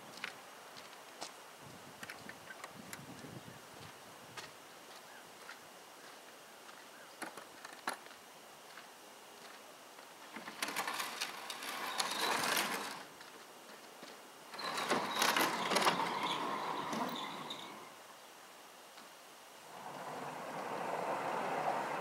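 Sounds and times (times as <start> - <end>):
sliding doors rolling rumble: 10.3 - 13.2, 14.5 - 18.0, 19.7 - 22.0.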